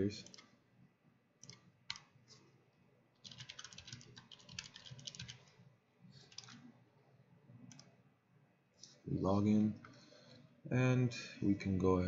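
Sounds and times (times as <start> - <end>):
computer keyboard keystrokes: 0.2 - 0.5, 1.4 - 2.1, 3.2 - 5.5, 6.3 - 6.6, 7.7 - 7.9.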